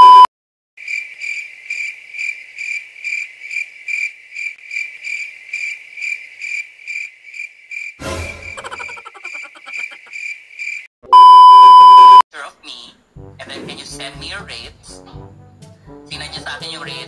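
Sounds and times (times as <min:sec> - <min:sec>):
cricket chirping: 0:00.8 - 0:10.9.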